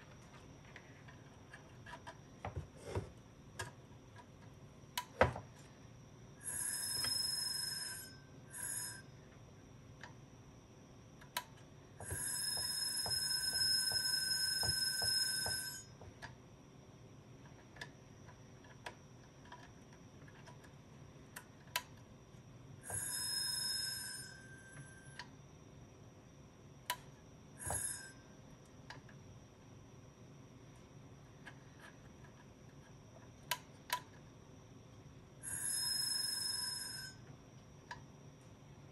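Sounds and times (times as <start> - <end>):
hard drive motor buzzing whine: 12.0 - 15.9, 27.6 - 28.2.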